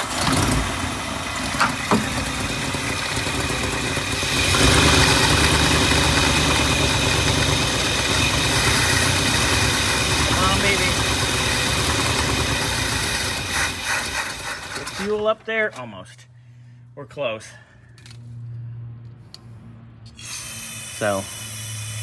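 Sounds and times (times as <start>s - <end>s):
car engine running: 0.0s - 14.9s
engine sharp pops: 1.4s - 3.9s.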